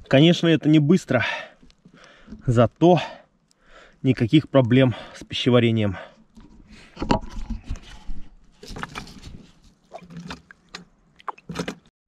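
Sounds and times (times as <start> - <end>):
hand pump knocking and scraping: 6.3 - 9.5.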